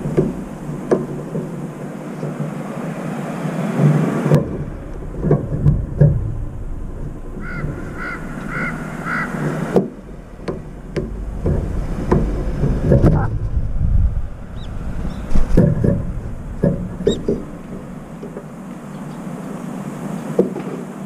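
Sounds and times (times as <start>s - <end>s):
steady low rumble: 0.0s - 20.4s
crow cawing: 7.4s - 10.2s.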